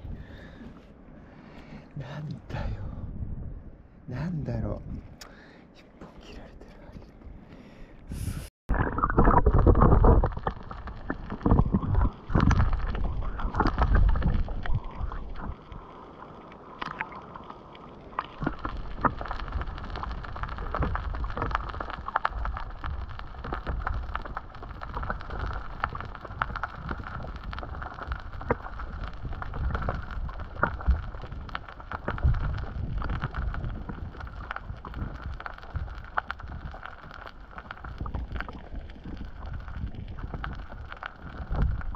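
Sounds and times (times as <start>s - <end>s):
dull rush of water: 8.7s - 41.9s.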